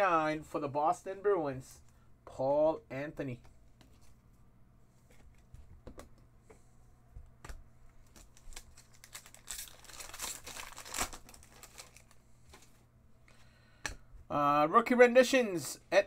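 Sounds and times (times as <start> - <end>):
wrapper tearing and crinkling: 8.1 - 12.2.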